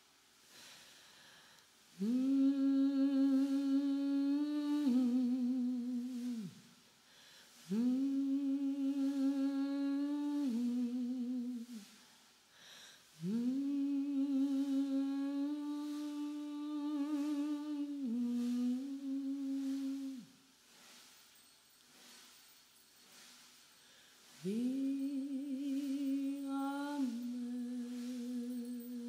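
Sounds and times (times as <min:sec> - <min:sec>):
person humming low notes: 0:01.9 - 0:06.6, 0:07.7 - 0:11.9, 0:13.2 - 0:20.3, 0:24.4 - 0:29.0.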